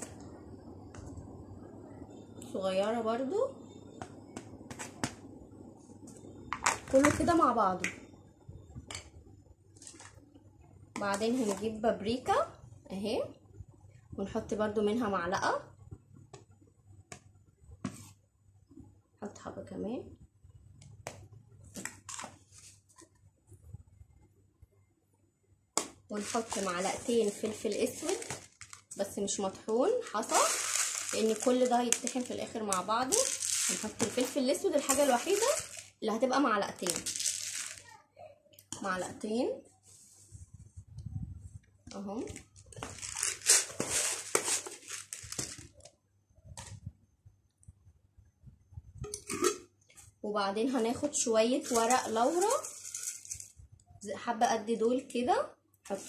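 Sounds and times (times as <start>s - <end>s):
spoon scraping plastic cup: 11.0s - 11.8s, 26.2s - 29.0s, 30.1s - 36.0s, 36.8s - 37.9s, 42.7s - 45.7s, 51.6s - 53.5s
spice packets rustling and clicking: 26.2s - 29.1s, 30.1s - 36.0s, 36.8s - 37.9s, 42.4s - 46.0s, 51.6s - 53.6s.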